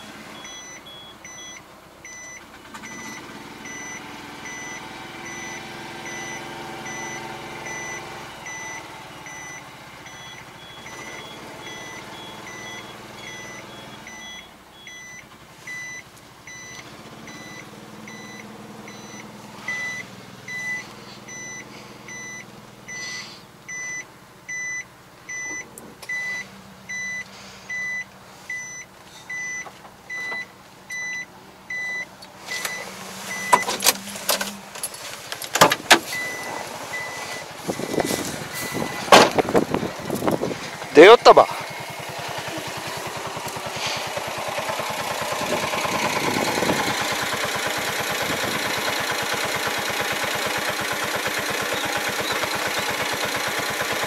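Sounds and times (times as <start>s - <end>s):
truck engine running: 0.0s - 54.0s
electronic warning beeps: 0.4s - 34.4s, 36.1s - 40.4s.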